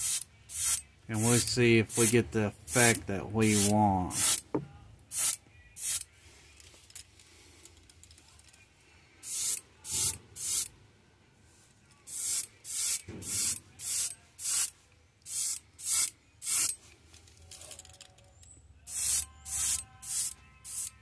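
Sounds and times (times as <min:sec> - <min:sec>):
airbrush spraying in hissing spurts: 0:00.0 - 0:04.4, 0:09.2 - 0:10.7, 0:12.1 - 0:14.7, 0:18.9 - 0:20.9.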